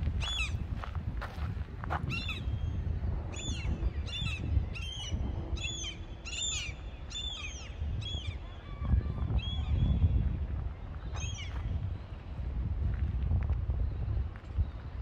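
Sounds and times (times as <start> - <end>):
steady low rumble: 0.0 - 7.0.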